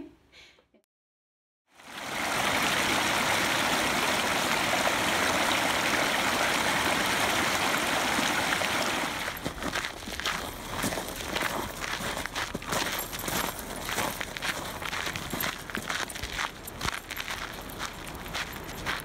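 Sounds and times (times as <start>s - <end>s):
creek rushing over rocks: 1.8s - 12.7s.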